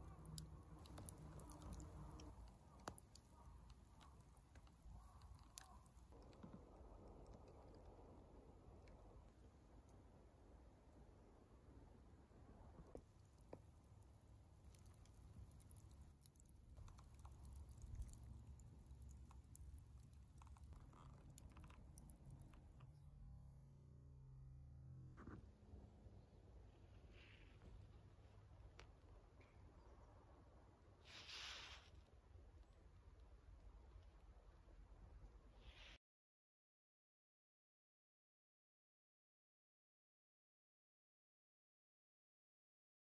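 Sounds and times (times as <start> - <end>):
campfire embers crackling: 0.0 - 6.4, 13.0 - 23.0
low steady rumble: 0.0 - 31.0.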